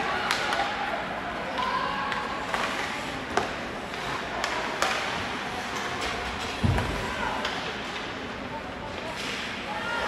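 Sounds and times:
arena noise: 0.0 - 10.0
hockey sticks clacking on puck: 0.1 - 0.8, 1.5 - 9.7.

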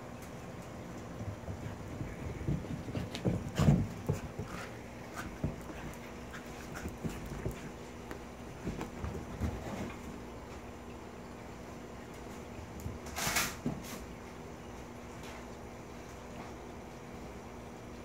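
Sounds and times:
animals scuffling and thumping: 0.2 - 10.8, 12.1 - 16.6
dog panting: 1.5 - 8.0.

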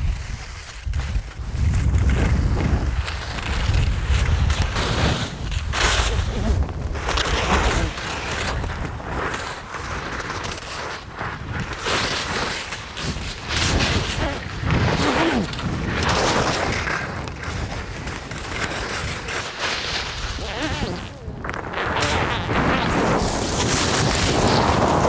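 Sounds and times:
wind buffeting microphone: 0.0 - 9.4, 13.0 - 19.4, 20.1 - 25.0
skis scraping on snow: 0.0 - 25.0.

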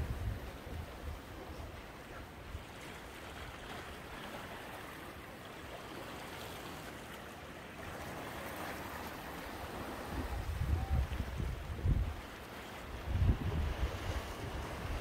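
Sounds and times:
waves washing among rocks: 7.7 - 15.0.

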